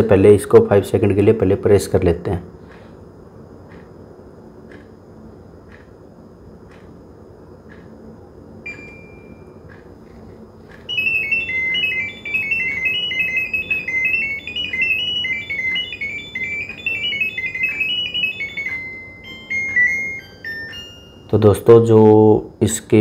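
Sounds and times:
fast high beeping tones: 0:10.9 - 0:21.7.

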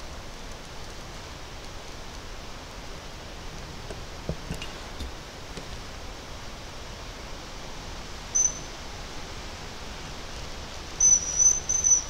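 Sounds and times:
wind in leaves: 0:00.0 - 0:12.0
bird whistle: 0:08.3 - 0:08.7, 0:11.0 - 0:12.0.

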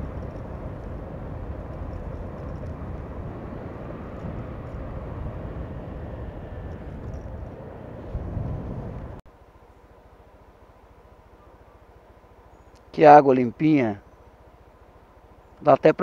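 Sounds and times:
wind noise on microphone: 0:00.0 - 0:09.2
motorcycle engine running: 0:00.0 - 0:12.7.

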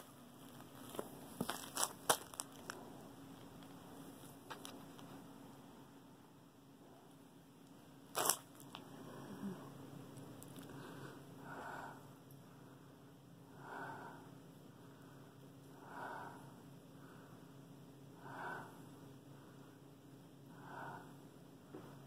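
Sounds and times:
soft nasal breathing: 0:10.6 - 0:19.8, 0:20.5 - 0:22.0.

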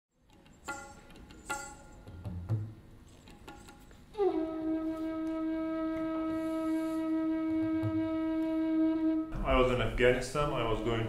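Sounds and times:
wind instrument long held note: 0:04.2 - 0:09.4.

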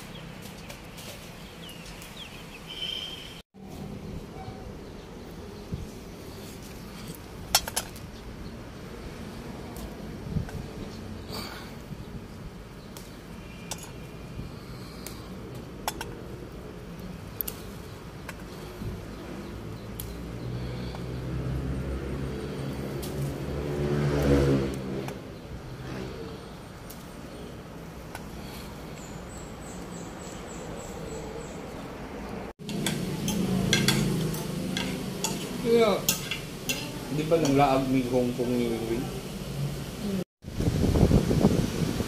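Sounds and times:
vehicle engine passing by: 0:18.6 - 0:26.8, 0:30.2 - 0:40.2.

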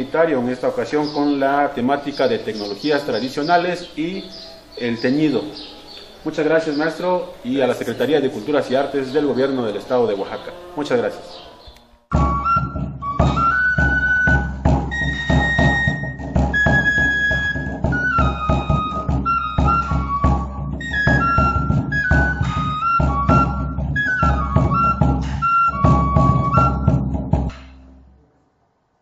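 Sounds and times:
instrumental music with busy beat: 0:12.1 - 0:28.1.

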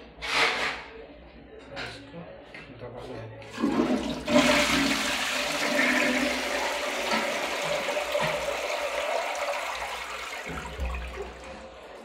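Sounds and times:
toilet flushing: 0:03.5 - 0:12.0.

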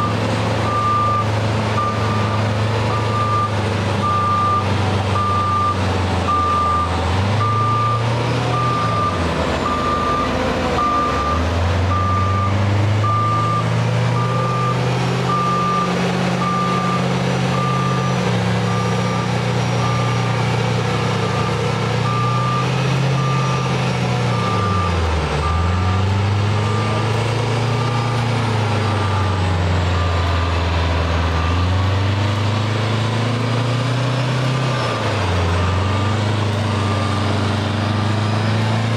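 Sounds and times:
reversing alarm beeping: 0:00.0 - 0:32.1, 0:34.4 - 0:38.1
diesel engines under load: 0:00.0 - 0:38.9.

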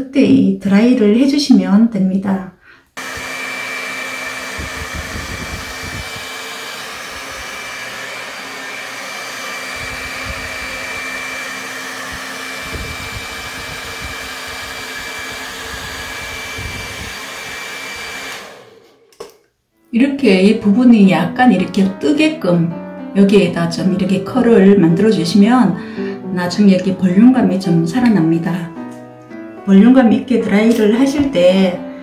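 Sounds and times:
hair dryer running: 0:03.0 - 0:19.4.

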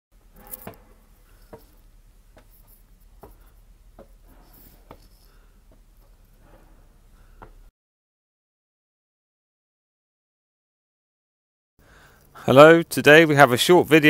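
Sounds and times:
footsteps on wooden walkway: 0:00.6 - 0:07.7.

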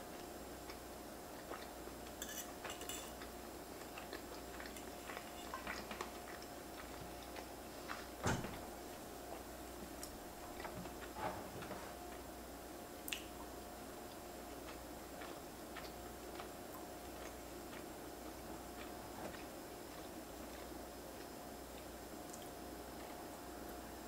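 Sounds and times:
close chewing with mouth clicks: 0:00.2 - 0:08.2, 0:13.0 - 0:23.8
metal fork clinking against pan: 0:02.2 - 0:03.1.

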